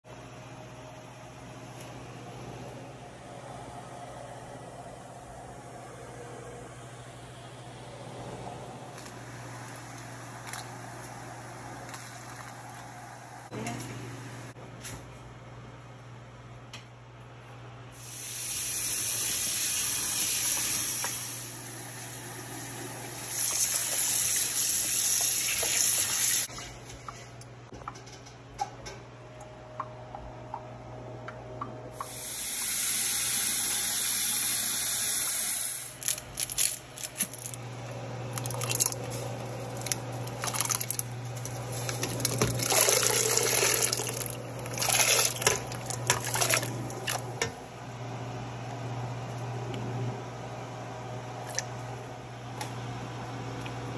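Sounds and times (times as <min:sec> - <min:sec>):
steady low hum: 0:00.1 - 0:18.4
tap water running into pot: 0:39.8 - 0:47.3
water splashing: 0:42.1 - 0:47.3.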